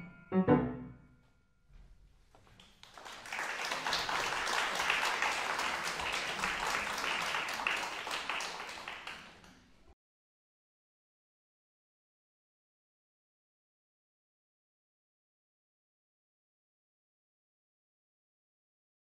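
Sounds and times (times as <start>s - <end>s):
audience applauding: 2.6s - 9.8s.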